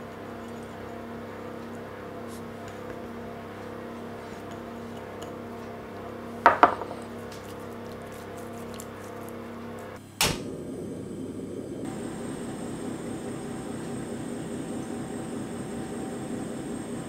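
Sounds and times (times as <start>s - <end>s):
ceramic bowl knocking on wood: 6.4s - 7.0s
gas burner rushing: 9.3s - 17.0s.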